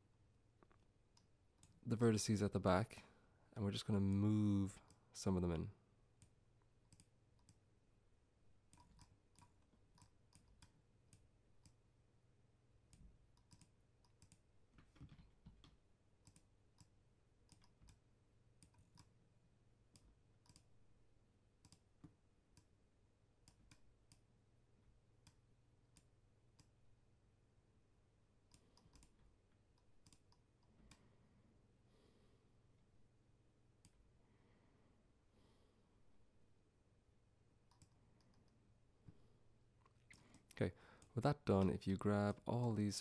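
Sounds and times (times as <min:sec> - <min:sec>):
computer mouse clicks: 0:06.2 - 0:07.6, 0:08.7 - 0:11.8, 0:12.9 - 0:14.4, 0:15.0 - 0:18.0, 0:18.6 - 0:19.2, 0:19.9 - 0:20.7, 0:21.6 - 0:22.7, 0:23.4 - 0:24.3, 0:28.5 - 0:31.1, 0:37.7 - 0:38.6, 0:39.9 - 0:41.7.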